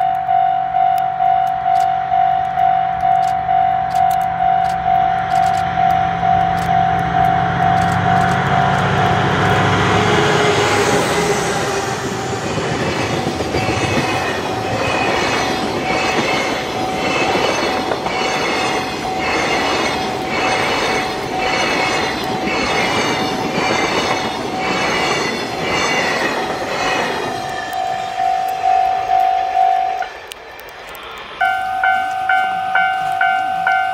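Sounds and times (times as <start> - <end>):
train wheels clattering over rail joints: 7.8 - 27.9
thin steady pulsed tone: 31.0 - 33.9.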